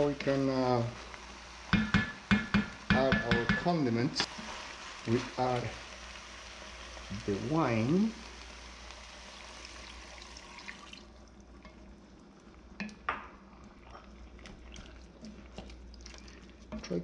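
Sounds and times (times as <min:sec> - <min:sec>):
wine sizzling in hot pot: 0:00.0 - 0:17.0
wooden spatula knocking pot: 0:01.7 - 0:03.8.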